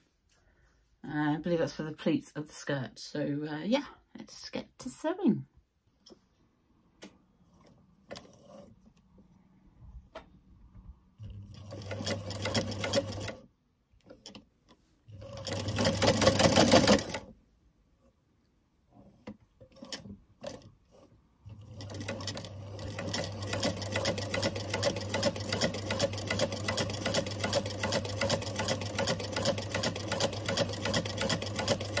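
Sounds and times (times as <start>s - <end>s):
sewing machine stitching: 7.4s - 9.0s, 11.2s - 17.3s, 19.0s - 32.0s.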